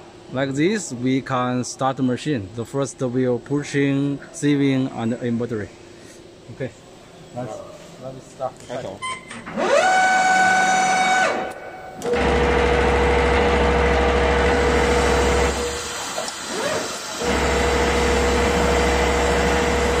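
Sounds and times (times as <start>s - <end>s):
machine steady low hum: 2.3s - 20.0s
machine motor whine: 9.4s - 20.0s.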